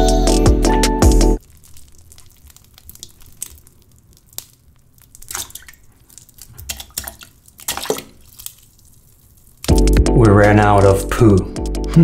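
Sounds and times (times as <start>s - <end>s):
oatmeal plopping into toilet water: 1.4s - 9.8s.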